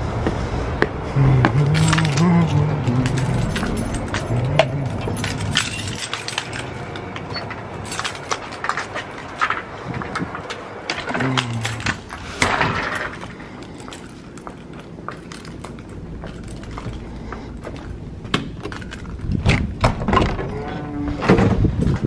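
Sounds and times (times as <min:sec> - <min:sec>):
footsteps: 0:00.0 - 0:19.4
wooden door clunking open: 0:18.6 - 0:21.7.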